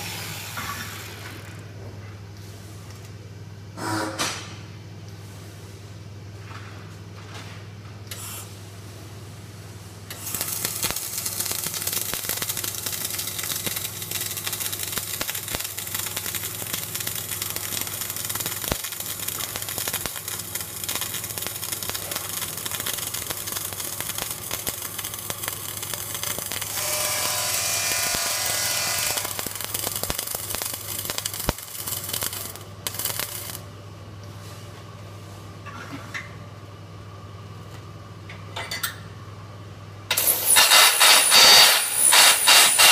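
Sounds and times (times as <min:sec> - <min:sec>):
steady low hum: 0:00.6 - 0:40.2
welding arc crackling and hissing: 0:10.0 - 0:33.8, 0:40.1 - 0:42.9.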